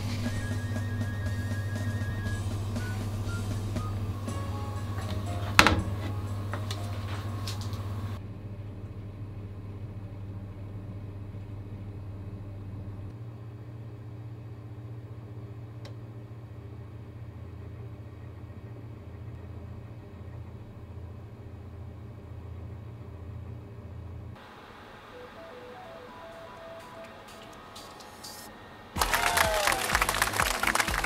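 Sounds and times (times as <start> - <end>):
background music: 0.0 - 8.2, 25.1 - 31.0
oven humming: 0.0 - 31.0.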